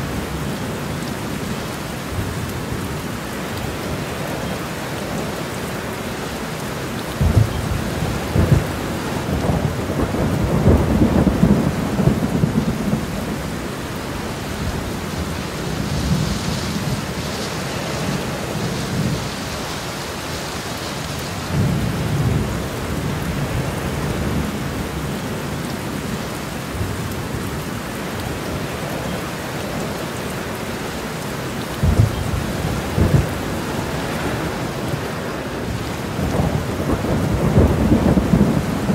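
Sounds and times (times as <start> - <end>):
heavy rain: 0.0 - 38.9
thunder rumbling: 7.2 - 27.6, 31.8 - 38.9.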